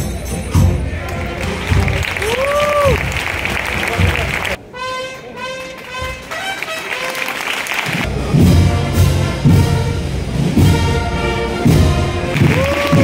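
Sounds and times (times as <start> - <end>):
heavy drum beats: 0.0 - 4.6, 7.9 - 13.0
brass band playing a march: 0.0 - 13.0.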